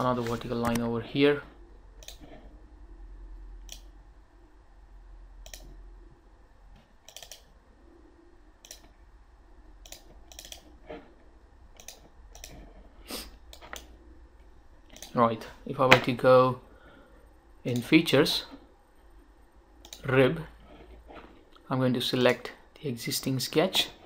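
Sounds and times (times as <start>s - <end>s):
low steady hum: 0.0s - 24.0s
computer mouse clicking: 2.0s - 2.3s, 3.6s - 3.9s, 5.4s - 5.8s, 6.7s - 7.5s, 8.6s - 9.0s, 9.8s - 10.7s, 11.7s - 12.6s, 13.5s - 14.0s, 14.9s - 15.2s, 19.8s - 20.1s.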